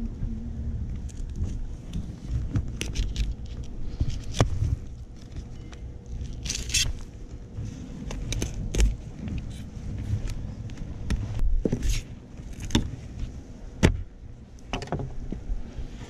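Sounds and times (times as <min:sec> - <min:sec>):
low rumble: 0:00.0 - 0:16.0
knife scraping: 0:05.6 - 0:07.0.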